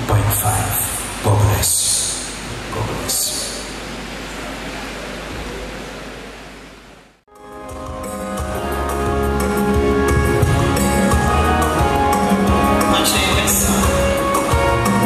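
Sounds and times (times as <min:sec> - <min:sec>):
steady static hiss: 0:00.0 - 0:15.0
instrumental music with bass and drums: 0:07.3 - 0:15.0.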